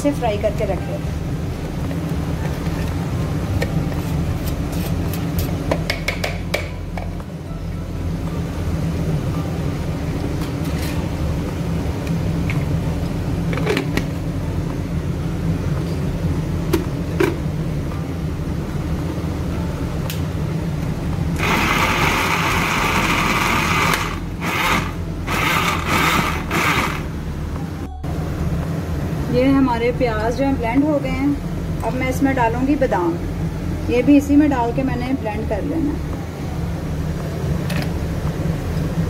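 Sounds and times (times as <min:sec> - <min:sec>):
steady low hum: 0:00.0 - 0:39.0
blender motor running: 0:21.4 - 0:27.1.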